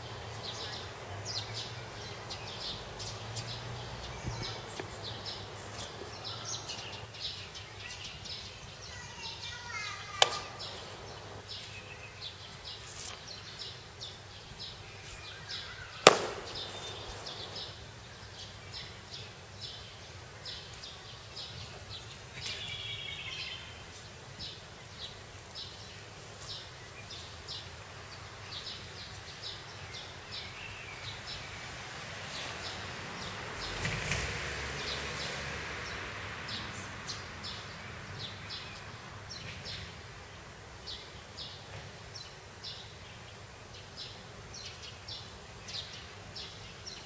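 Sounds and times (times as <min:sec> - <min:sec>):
small birds chirping: 0:00.0 - 0:47.0
sharp smacks of kicks and stamps: 0:16.0 - 0:17.7.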